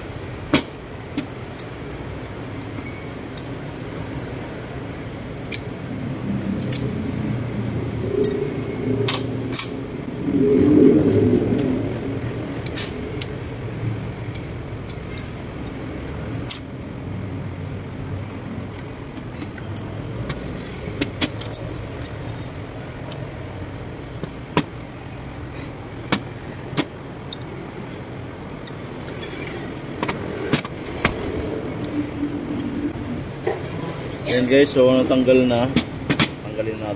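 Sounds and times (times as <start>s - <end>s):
metallic tool clicks and clinks: 6.4s - 7.4s, 14.2s - 17.5s, 27.2s - 27.9s.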